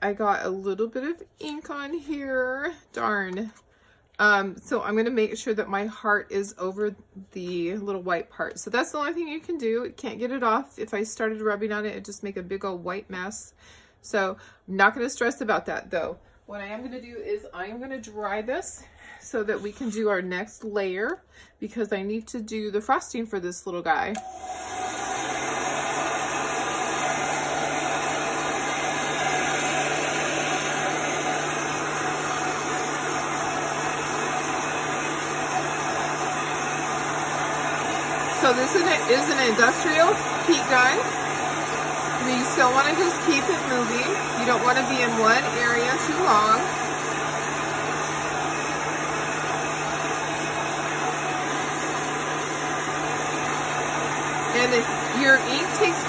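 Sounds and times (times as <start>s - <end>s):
heat gun blowing hot air: 24.2s - 56.0s.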